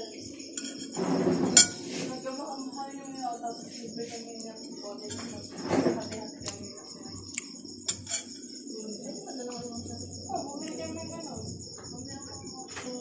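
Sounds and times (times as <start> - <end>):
crickets chirping: 0.0 - 13.0
spoon clicking on ceramic plate: 7.9 - 8.4.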